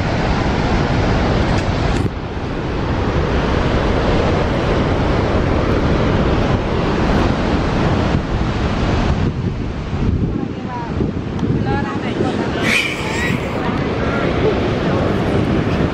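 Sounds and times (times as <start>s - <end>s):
wind buffeting microphone: 0.0s - 15.9s
waterfall rushing: 12.6s - 14.1s.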